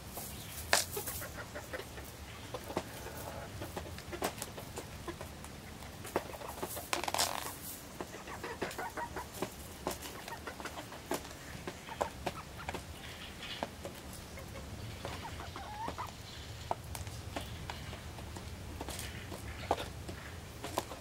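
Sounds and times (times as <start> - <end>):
hens scuffling: 0.0 - 21.0
clicks and scratches on gravel: 0.1 - 1.7, 6.0 - 12.2
hens clucking softly: 0.1 - 21.0.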